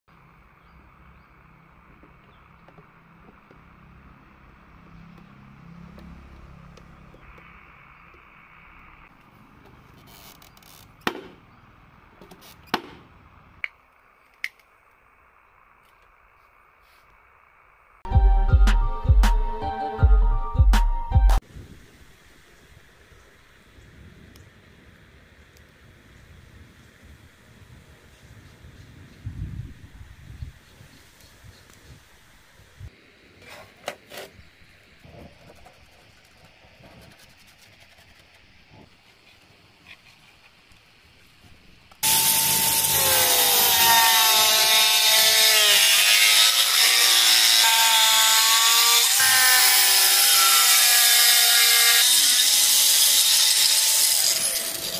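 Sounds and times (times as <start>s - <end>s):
pen scratching on plastic sheet: 35.4s - 38.4s.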